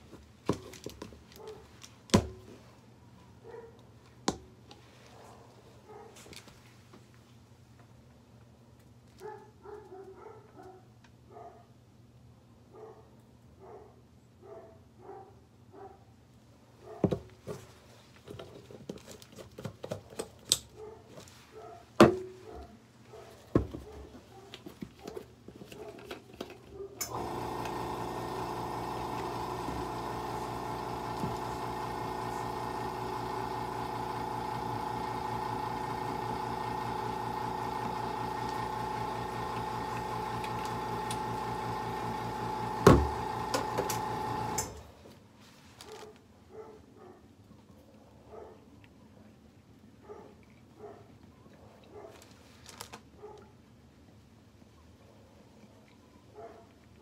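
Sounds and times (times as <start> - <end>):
small electric motor humming: 27.0 - 44.8.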